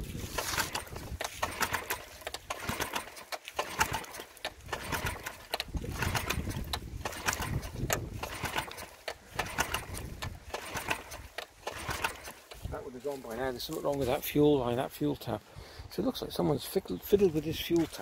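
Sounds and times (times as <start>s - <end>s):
outboard engine running roughly: 0.2s - 12.8s.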